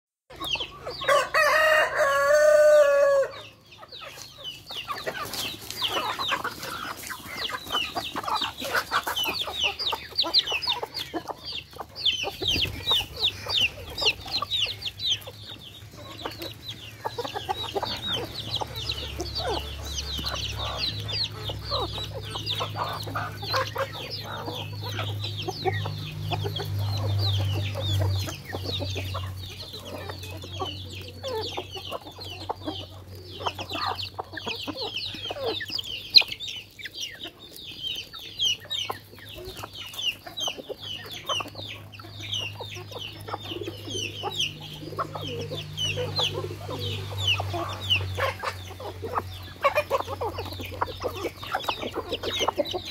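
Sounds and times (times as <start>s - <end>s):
chickens clucking and pecking: 0.3s - 52.9s
rooster crowing: 1.0s - 3.5s.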